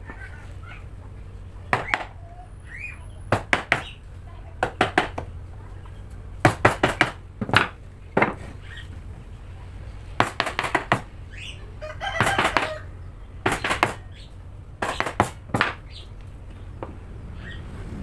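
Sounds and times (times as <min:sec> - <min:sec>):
chicken calling: 0:00.0 - 0:06.4, 0:08.4 - 0:10.0, 0:11.0 - 0:17.9
hammer striking wood chisel: 0:01.7 - 0:02.2, 0:03.3 - 0:04.0, 0:04.6 - 0:05.4, 0:06.4 - 0:08.5, 0:10.2 - 0:11.1, 0:12.2 - 0:12.8, 0:13.4 - 0:14.1, 0:14.8 - 0:15.9.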